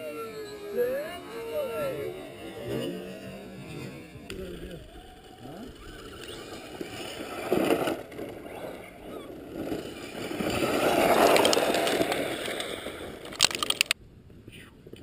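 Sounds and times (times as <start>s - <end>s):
electric motor and tyres in sand: 0.0s - 15.0s
sharp clicks: 11.3s - 14.0s.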